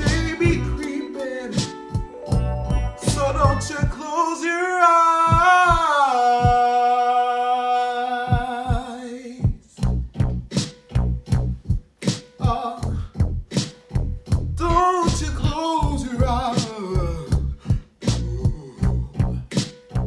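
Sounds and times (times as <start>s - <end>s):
man singing held note: 0.0s - 2.0s.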